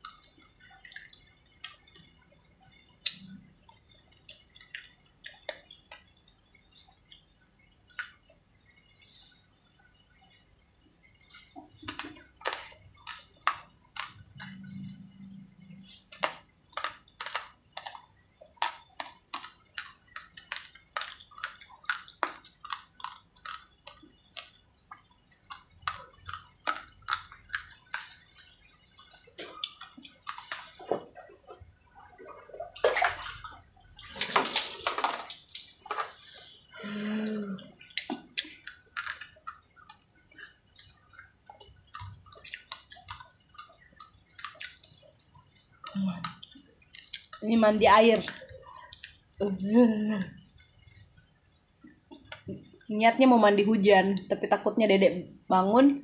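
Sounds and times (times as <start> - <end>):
water pouring and splashing: 10.8 - 52.9.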